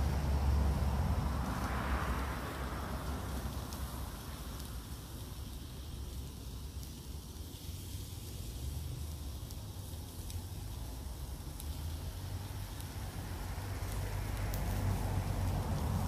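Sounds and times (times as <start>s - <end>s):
meat sizzling in a pan: 0.0s - 16.0s.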